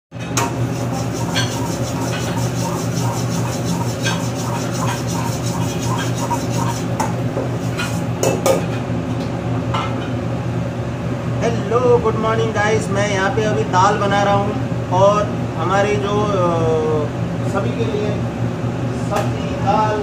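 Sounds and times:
burner and exhaust fan hum: 0:00.1 - 0:20.0
metal ladle scraping wok: 0:00.4 - 0:08.2.

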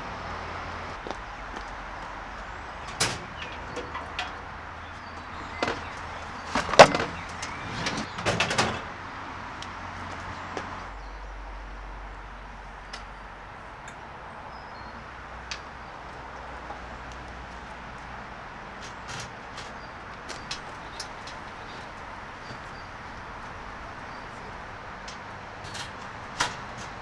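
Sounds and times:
faint outdoor background: 0:00.0 - 0:27.0
metal clanks and rattles: 0:02.8 - 0:04.5, 0:05.3 - 0:08.9.

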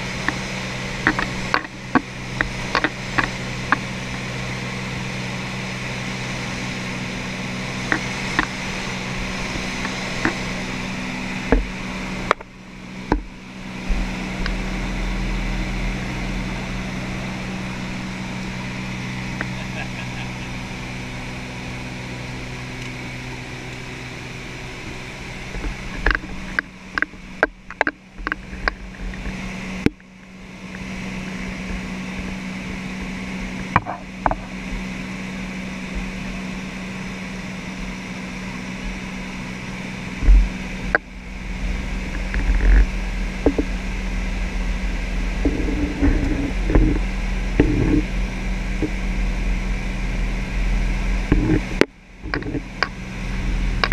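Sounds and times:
aircraft engine and propeller drone: 0:00.0 - 0:53.9
low uneven rumble: 0:00.0 - 0:53.9
sharp clicks and knocks: 0:01.0 - 0:04.2, 0:13.1 - 0:13.3, 0:24.8 - 0:30.2, 0:33.7 - 0:34.5, 0:42.0 - 0:43.7, 0:47.6 - 0:48.1, 0:51.3 - 0:53.0.

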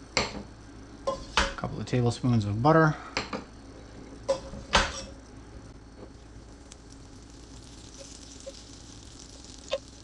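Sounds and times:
oil hissing in a frying pan: 0:05.9 - 0:10.0.

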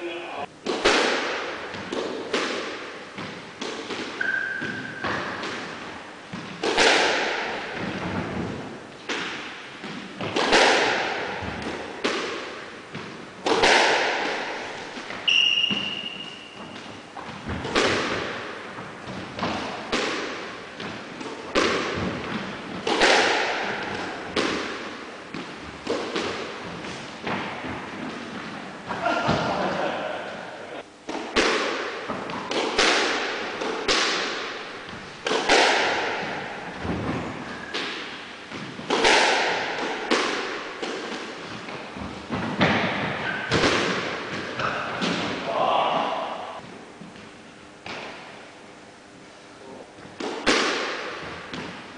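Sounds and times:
squash ball hits echoing: 0:00.6 - 0:30.3, 0:31.0 - 0:46.7, 0:47.8 - 0:48.3, 0:50.2 - 0:51.9
shoe squeaks: 0:04.2 - 0:05.2, 0:15.2 - 0:17.0, 0:37.4 - 0:37.7.

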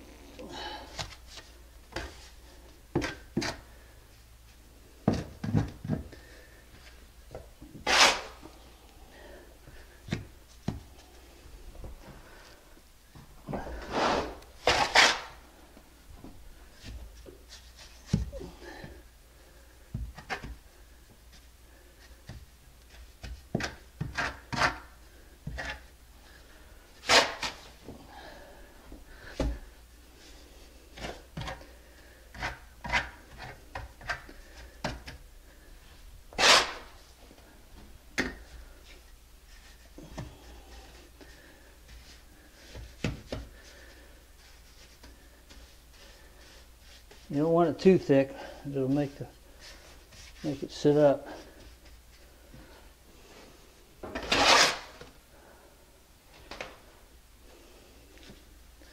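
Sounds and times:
trowel scraping wet mortar: 0:07.8 - 0:08.4, 0:13.8 - 0:15.4, 0:36.3 - 0:37.0, 0:54.2 - 0:55.0.

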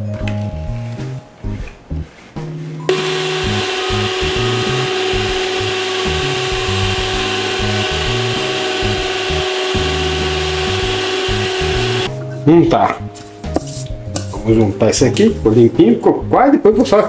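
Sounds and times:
stand mixer motor whine: 0:02.9 - 0:12.1.

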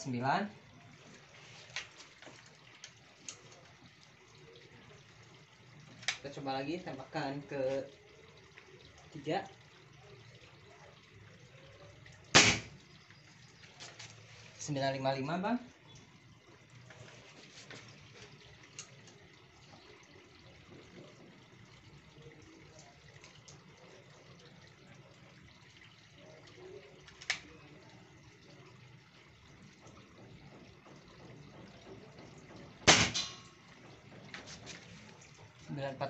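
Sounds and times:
air rifle shot: 0:12.3 - 0:12.8, 0:32.9 - 0:33.3.

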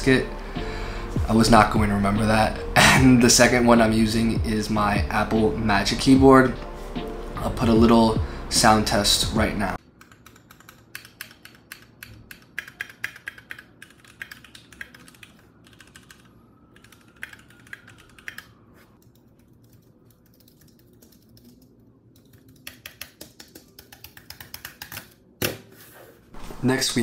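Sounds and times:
typing on low keyboard keys: 0:10.0 - 0:25.0.

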